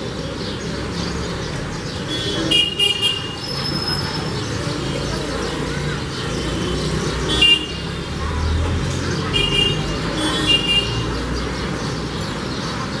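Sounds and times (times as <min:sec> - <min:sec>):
road traffic rumble: 0:00.0 - 0:13.0
sparrow chirping: 0:00.0 - 0:13.0.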